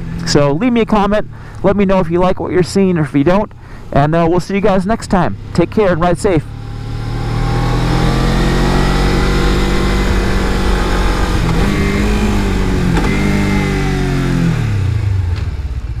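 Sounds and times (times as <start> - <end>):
motorcycle engine running: 5.0 - 16.0.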